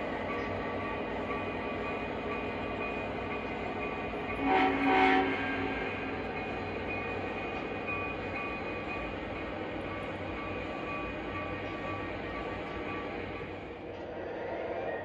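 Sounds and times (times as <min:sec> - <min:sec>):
model train rolling on track: 0:00.0 - 0:15.0
model train horn pulses: 0:04.4 - 0:06.1.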